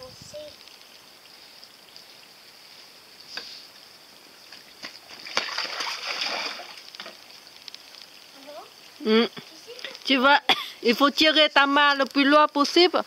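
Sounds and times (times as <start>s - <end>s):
toy boat splashing on water: 5.2s - 7.2s
faint clicks: 6.8s - 8.3s.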